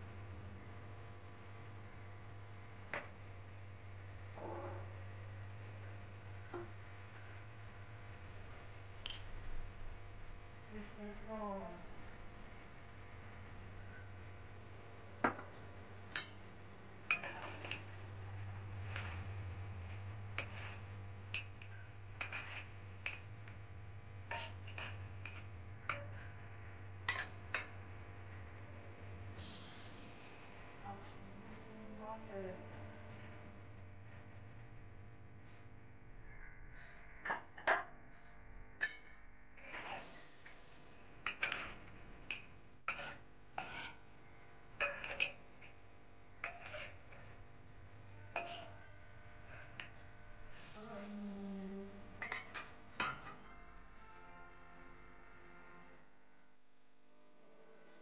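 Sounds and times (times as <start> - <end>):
steady low hum: 0.0 - 58.0
spatula scraping a wok: 17.1 - 23.4, 24.3 - 26.1, 39.7 - 40.7, 42.9 - 44.0, 44.8 - 45.4, 46.4 - 47.3.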